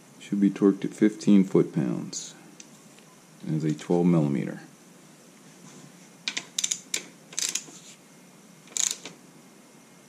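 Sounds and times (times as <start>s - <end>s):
ratcheting torque wrench clicking: 6.3s - 7.7s, 8.7s - 9.2s.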